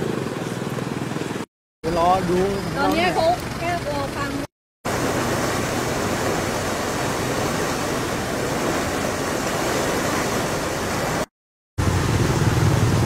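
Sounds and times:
floodwater rushing: 0:02.7 - 0:13.0.

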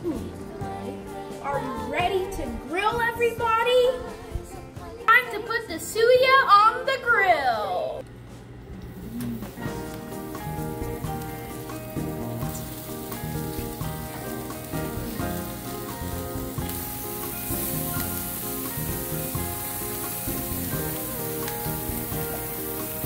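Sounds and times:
background music with held chords: 0:00.0 - 0:06.8, 0:09.4 - 0:23.0
meat sizzling on a grill: 0:09.4 - 0:23.0.

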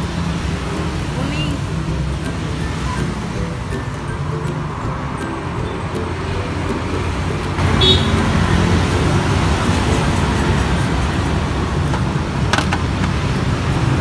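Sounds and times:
road traffic rumble: 0:00.0 - 0:14.0
high-pitched tone: 0:01.1 - 0:11.6.

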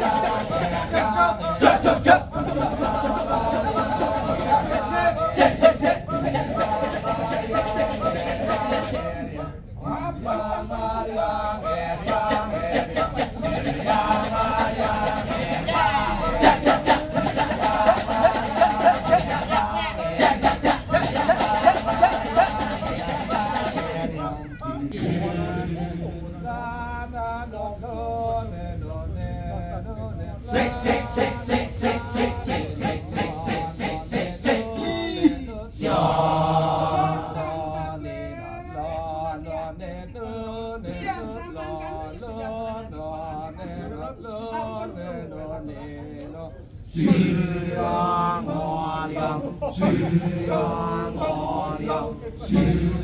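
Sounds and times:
male chorus chanting: 0:00.0 - 0:53.0
sliding vocal cry: 0:11.7 - 0:25.4.

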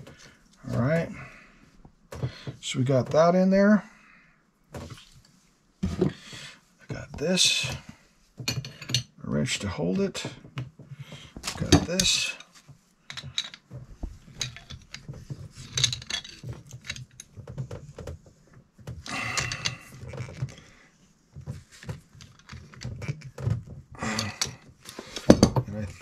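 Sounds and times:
metal tools clinking on brass: 0:08.5 - 0:09.2, 0:11.6 - 0:12.5.

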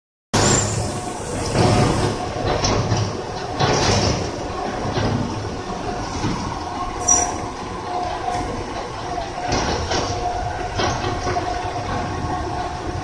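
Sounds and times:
high metallic squeal: 0:00.4 - 0:01.2, 0:07.0 - 0:07.6, 0:08.3 - 0:08.6
machinery rumble and rattle: 0:00.4 - 0:13.0
metal clanks: 0:07.0 - 0:07.6.

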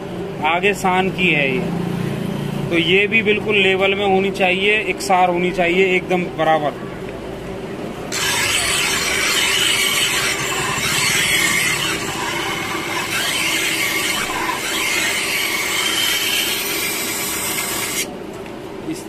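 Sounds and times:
blade grinding on sharpening wheel: 0:08.1 - 0:18.1
sharpening wheel humming: 0:08.1 - 0:18.2.

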